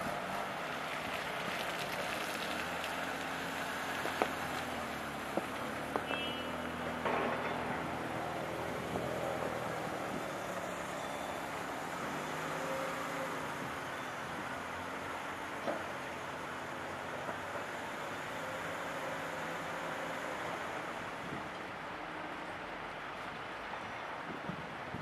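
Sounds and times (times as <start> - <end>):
diesel engine under load: 0.0 - 23.2
sharp knocks: 7.0 - 8.0.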